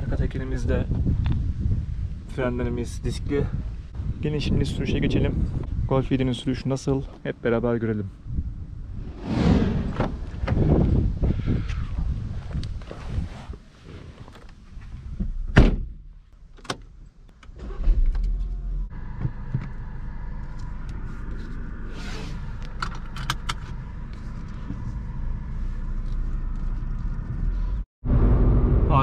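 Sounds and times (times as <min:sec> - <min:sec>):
car door shutting: 0:09.8 - 0:10.7, 0:15.2 - 0:16.0
car engine starting and idling: 0:16.4 - 0:29.0.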